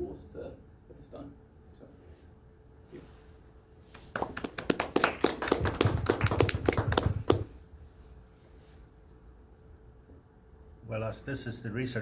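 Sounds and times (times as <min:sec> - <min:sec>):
small group applauding: 0:03.9 - 0:07.6.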